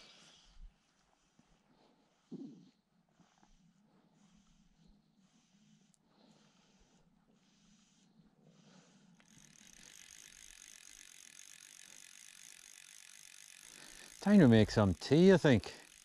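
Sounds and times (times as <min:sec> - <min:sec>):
fly reel ratchet clicking: 0:09.2 - 0:16.0.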